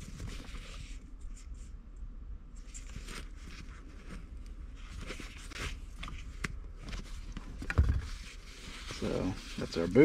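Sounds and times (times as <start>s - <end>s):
leather scraping against plastic: 7.0s - 10.0s.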